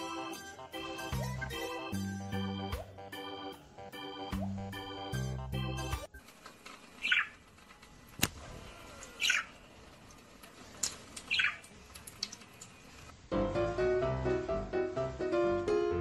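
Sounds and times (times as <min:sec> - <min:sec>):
budgerigar chirping: 0:07.0 - 0:07.4, 0:09.2 - 0:09.5, 0:11.3 - 0:11.6
trickle of tap water: 0:10.4 - 0:13.0.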